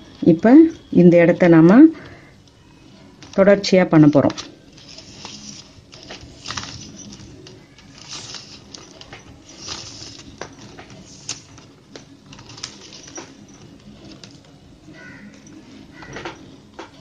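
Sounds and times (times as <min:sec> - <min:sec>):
plastic wire clicking and rustling: 0:02.4 - 0:14.6.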